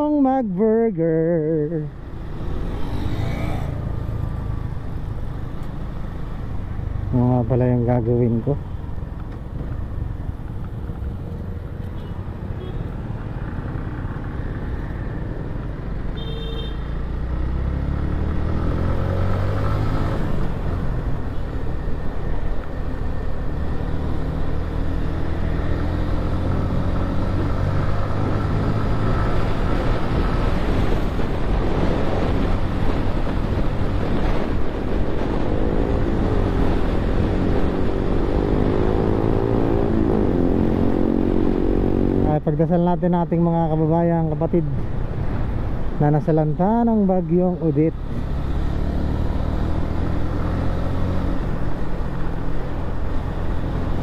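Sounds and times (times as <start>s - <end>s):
motorcycle engine accelerating: 17.2s - 42.4s, 48.0s - 54.0s
wind noise: 28.8s - 42.2s.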